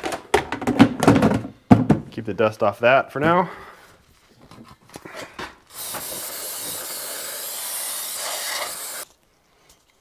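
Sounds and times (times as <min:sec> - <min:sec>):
aerosol spray can hissing: 0:05.7 - 0:09.1.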